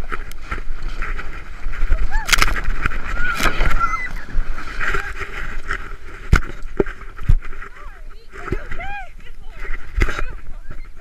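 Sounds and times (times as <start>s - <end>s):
sled hard bumps: 0.0s - 11.0s
sled scraping over snow: 0.0s - 11.0s
wind on microphone: 0.0s - 11.0s
people shrieking and laughing: 1.9s - 2.4s, 3.0s - 4.6s.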